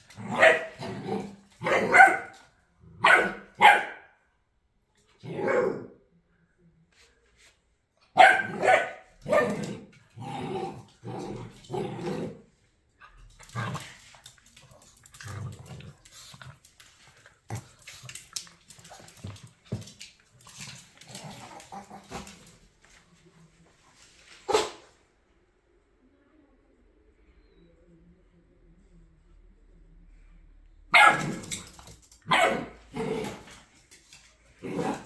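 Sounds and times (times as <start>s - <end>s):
small dogs barking: 0.3s - 0.8s, 1.6s - 2.4s, 3.0s - 4.1s, 8.2s - 9.8s, 30.9s - 31.6s, 32.2s - 33.0s.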